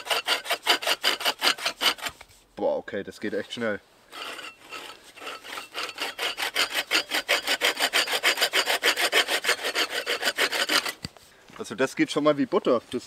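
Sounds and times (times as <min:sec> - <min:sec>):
bow saw cutting wood: 0:00.0 - 0:02.4, 0:04.1 - 0:11.2.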